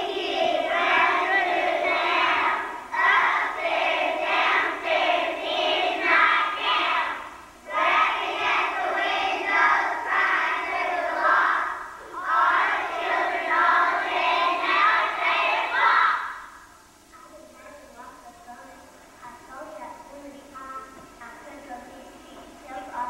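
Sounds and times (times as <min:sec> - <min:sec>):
children singing in unison: 0:00.0 - 0:16.5.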